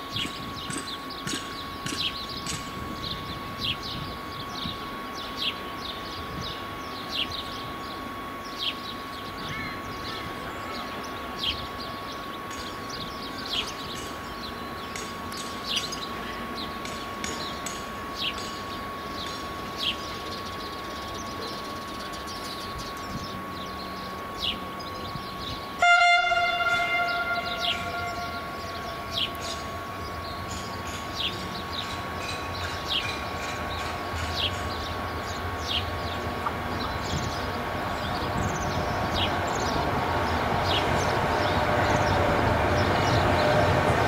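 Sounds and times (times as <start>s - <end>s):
train rumbling: 0.0s - 44.0s
steady high tone: 19.1s - 33.4s
locomotive horn: 25.8s - 29.9s
bird chirping: 26.3s - 43.7s.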